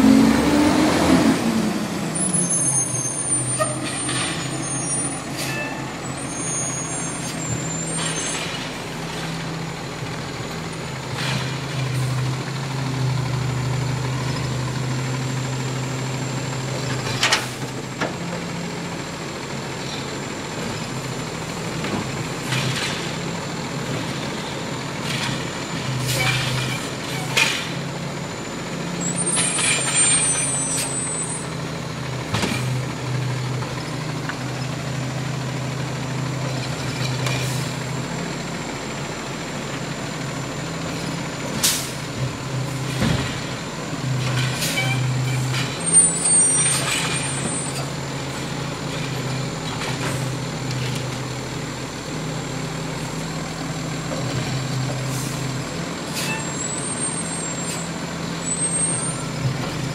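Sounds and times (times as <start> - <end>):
garbage truck engine running: 0.0 - 59.9
air brakes hissing: 41.0 - 42.1, 44.5 - 47.8, 55.0 - 55.5, 56.1 - 59.0.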